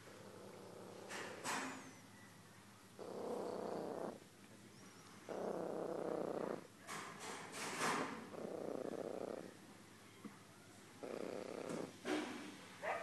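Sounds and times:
cat purring: 0.0 - 1.8, 3.0 - 4.3, 5.3 - 6.8, 7.7 - 9.6, 11.0 - 12.1.

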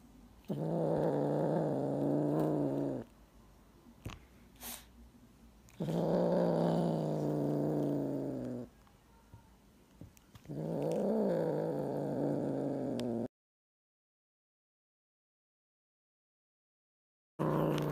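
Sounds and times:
kitten growling: 0.4 - 3.1, 5.7 - 8.7, 10.4 - 13.3, 17.4 - 17.9.

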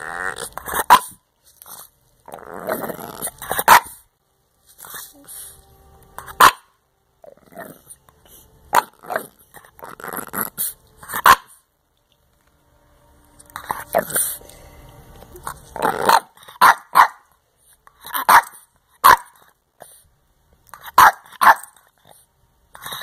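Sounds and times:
dog barking: 0.8 - 1.2, 3.6 - 4.0, 6.3 - 6.7, 8.7 - 9.3, 11.2 - 11.6, 16.0 - 17.3, 18.1 - 19.4, 20.8 - 21.8.

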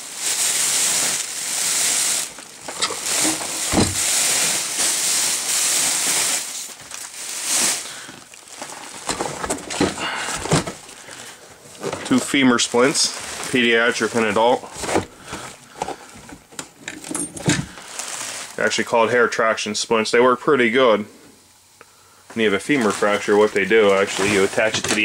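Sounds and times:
fabric bag rustling: 0.0 - 15.5, 17.7 - 18.7, 22.6 - 25.0.

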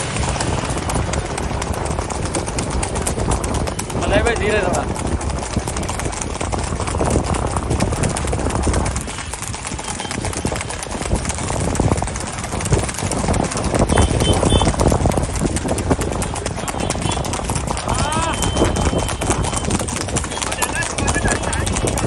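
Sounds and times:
horse hooves clattering on concrete: 0.0 - 22.0
motorcycle engines running: 0.0 - 22.0.

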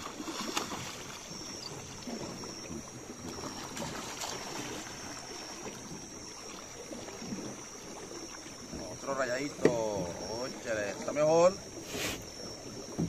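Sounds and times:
river water trickling and lapping: 0.0 - 13.0.

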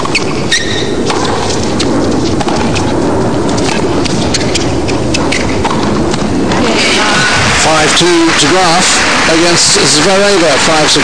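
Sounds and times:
crowd hubbub: 6.5 - 11.0.

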